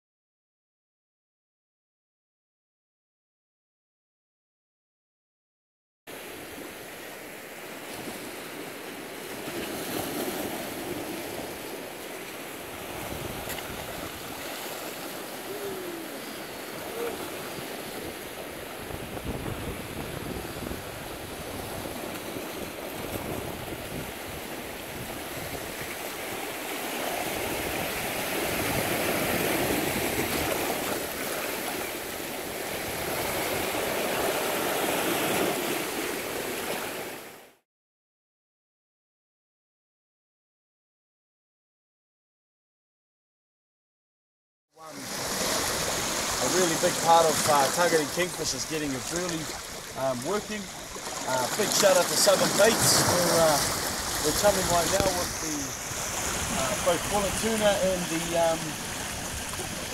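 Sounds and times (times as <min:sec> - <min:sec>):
sea waves washing against rocks: 0:06.2 - 0:37.3, 0:44.8 - 0:59.9.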